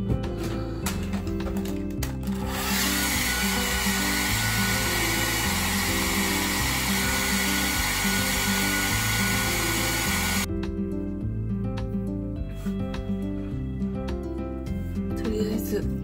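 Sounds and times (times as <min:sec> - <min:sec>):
background music with bass: 0:00.0 - 0:16.0
hair dryer blowing: 0:02.3 - 0:10.5.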